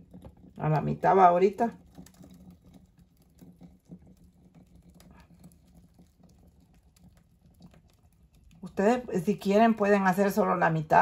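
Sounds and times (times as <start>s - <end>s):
low steady hum: 0.0s - 2.1s, 8.4s - 11.0s.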